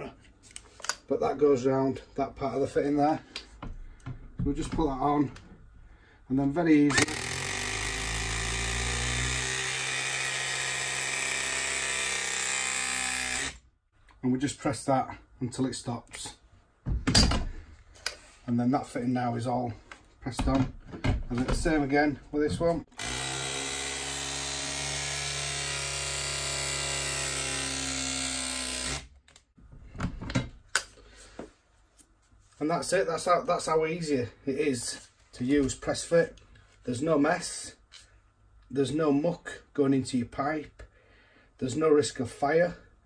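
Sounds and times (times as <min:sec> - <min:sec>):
press tool motor running: 0:06.9 - 0:13.6, 0:23.0 - 0:29.1.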